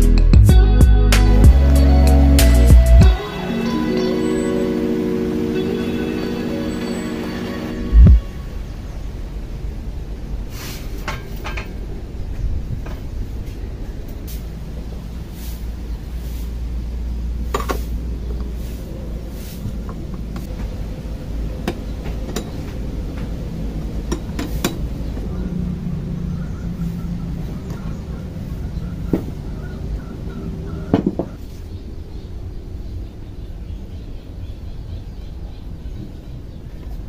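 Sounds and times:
low rumble: 0.0s - 31.0s
metal knocks: 30.9s - 31.4s.

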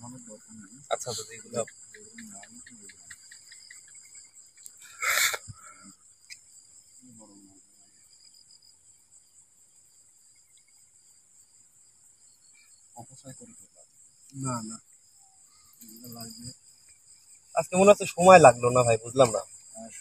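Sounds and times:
faint murmur: 0.0s - 3.2s
crickets chirping: 0.0s - 20.0s.

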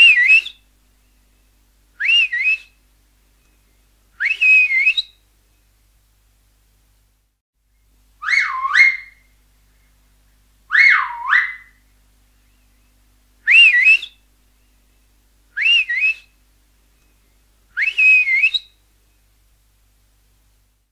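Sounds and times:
finger whistles gliding in pitch: 4.2s - 5.1s, 13.5s - 14.2s, 15.6s - 16.3s, 17.8s - 18.7s.

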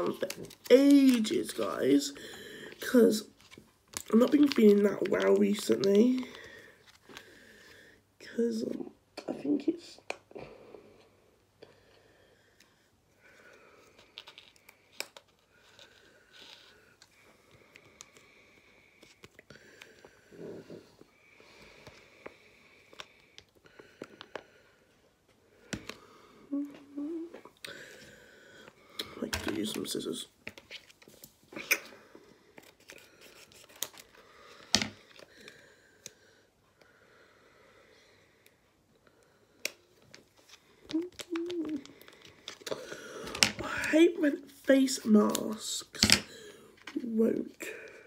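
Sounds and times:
foil sachet crinkling: 0.0s - 1.8s, 3.9s - 6.6s
packet crinkling: 0.0s - 7.3s, 13.8s - 16.7s, 32.6s - 35.6s, 40.0s - 45.7s.

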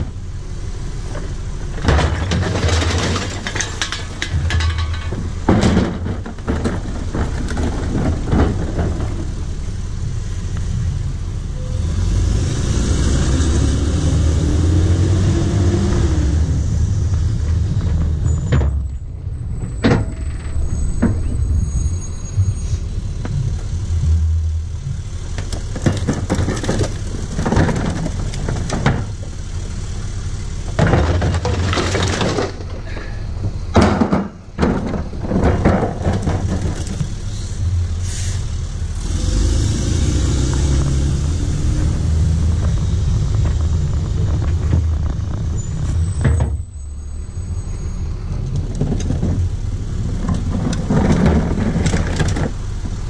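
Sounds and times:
garbage truck engine rumbling: 0.0s - 53.0s
bottles and cans clattering into hopper: 1.8s - 9.1s, 30.8s - 33.0s, 33.8s - 37.1s.

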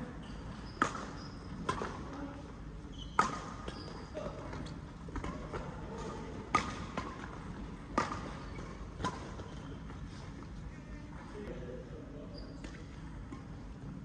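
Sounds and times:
rackets striking shuttlecock: 3.2s - 4.0s, 5.1s - 8.4s.

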